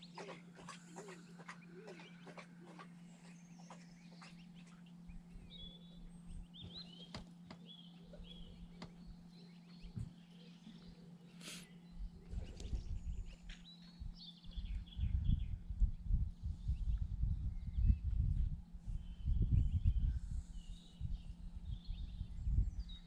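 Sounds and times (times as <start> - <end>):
bird chirps and peeps: 0.0 - 11.5
steady low hum: 0.0 - 23.0
wind buffeting microphone: 12.0 - 23.0.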